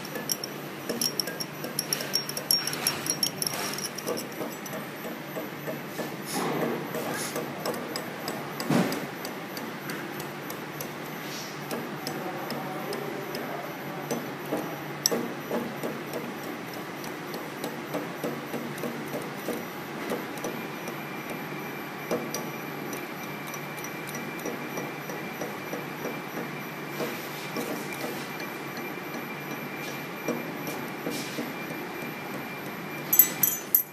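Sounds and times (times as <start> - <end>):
bending machine running: 0.0 - 5.8
thin steady whine: 0.0 - 6.0.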